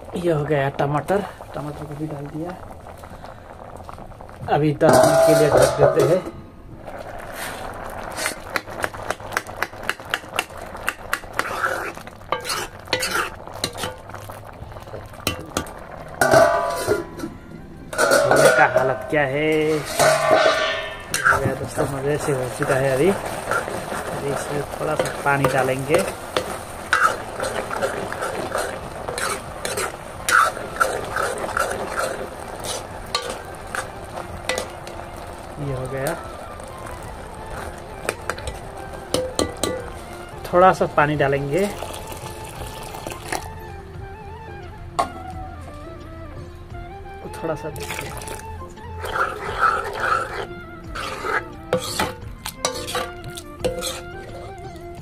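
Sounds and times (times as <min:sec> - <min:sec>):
ladle scraping and clinking pan: 0:04.8 - 0:06.4, 0:07.2 - 0:14.3, 0:15.0 - 0:36.4, 0:37.6 - 0:40.1, 0:49.0 - 0:54.5.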